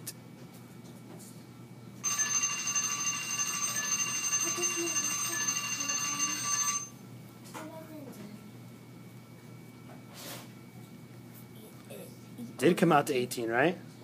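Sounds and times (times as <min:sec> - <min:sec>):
school bell ringing: 0:02.0 - 0:07.0.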